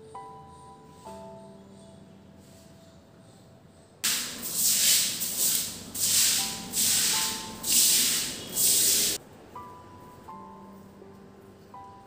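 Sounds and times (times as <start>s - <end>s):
stick broom scrubbing wet tiles: 4.0s - 9.2s.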